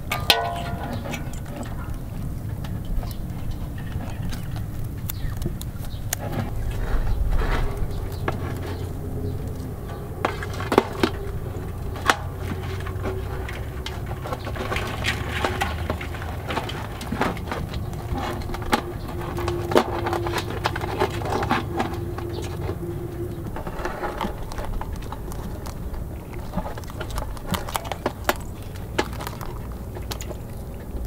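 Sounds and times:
low steady rumble: 0:00.0 - 0:31.0
crab shells knocking on metal pot: 0:00.1 - 0:01.5.

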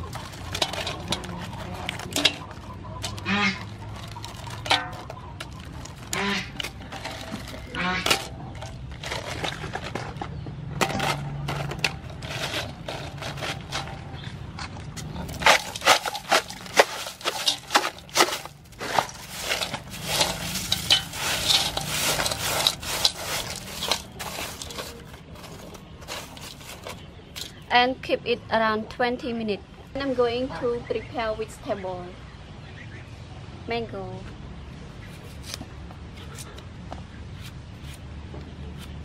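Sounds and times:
crushed ice clattering into metal bowl: 0:00.0 - 0:10.2, 0:10.8 - 0:14.0, 0:15.2 - 0:27.6.

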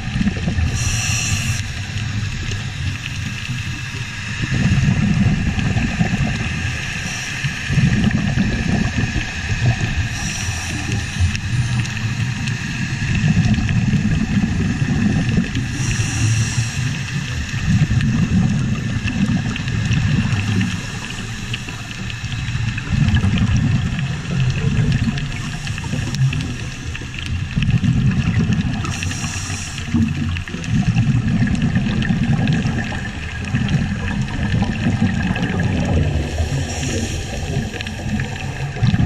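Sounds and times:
underwater bubbling exhalations: 0:00.0 - 0:39.0
regulator inhalation hiss: 0:00.6 - 0:01.9, 0:06.7 - 0:07.7, 0:10.1 - 0:13.1, 0:15.6 - 0:17.4, 0:28.8 - 0:30.3, 0:36.2 - 0:38.2.

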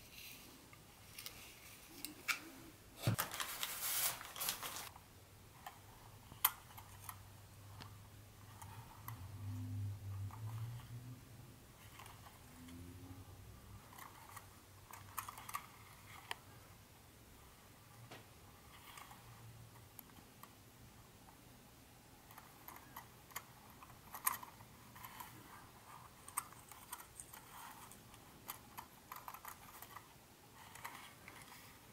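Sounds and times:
packaging rustling: 0:03.1 - 0:04.9.

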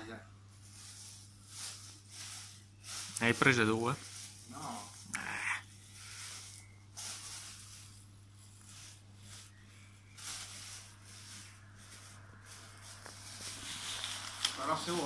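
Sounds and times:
faint low hum: 0:00.0 - 0:15.0
plastic bags crinkling: 0:00.6 - 0:15.0.

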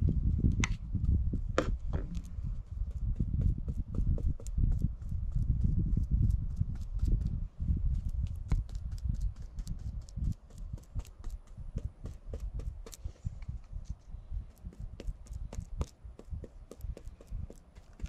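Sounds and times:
low rumble: 0:00.0 - 0:04.0
brush tapping: 0:01.0 - 0:07.4, 0:08.0 - 0:18.0.

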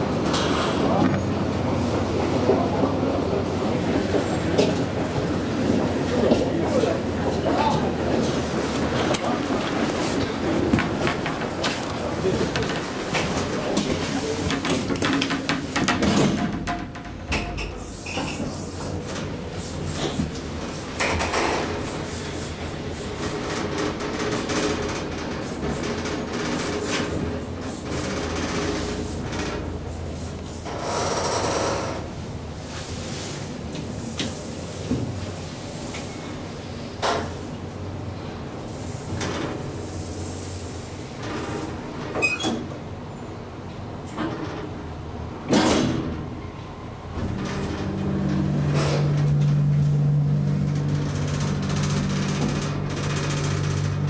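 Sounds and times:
knocks and clatter: 0:10.6 - 0:17.8
elevator humming: 0:46.6 - 0:54.0.

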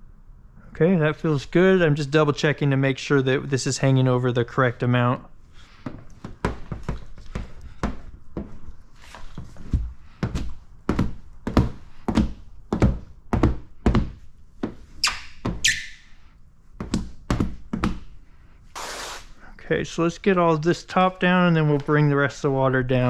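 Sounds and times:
short hiss: 0:18.7 - 0:19.5.

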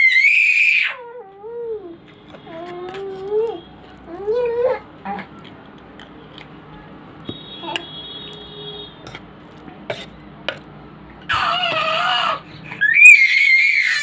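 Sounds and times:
baby squealing: 0:00.0 - 0:01.9, 0:11.3 - 0:14.0.

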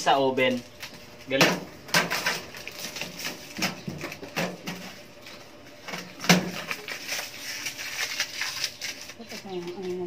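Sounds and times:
plastic wrap rustling and tearing: 0:01.9 - 0:05.1, 0:05.9 - 0:10.0.

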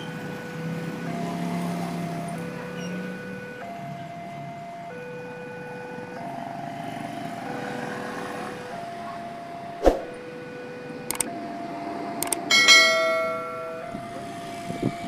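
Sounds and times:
level crossing two-tone alarm: 0:00.0 - 0:15.0
road traffic: 0:00.0 - 0:15.0
passing motorbike: 0:06.6 - 0:08.9.

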